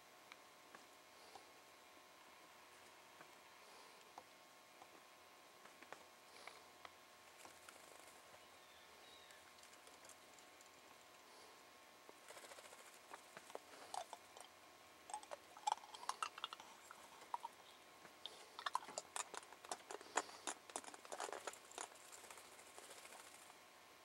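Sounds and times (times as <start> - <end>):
woodpecker pecking on wood: 18.2 - 23.5.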